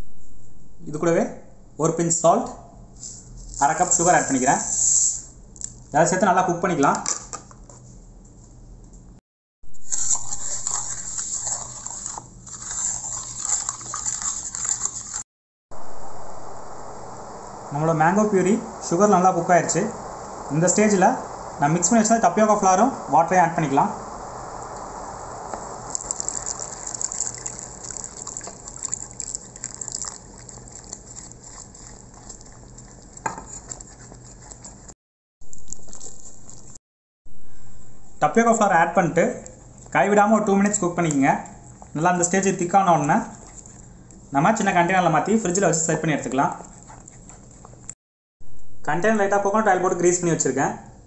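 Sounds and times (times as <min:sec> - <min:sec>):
syrup bubbling and crackling: 0:16.0 - 0:34.9.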